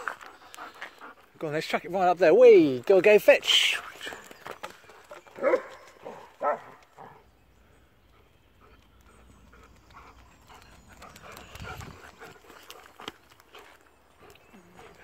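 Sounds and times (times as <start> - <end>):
dog barking: 5.4 - 6.8.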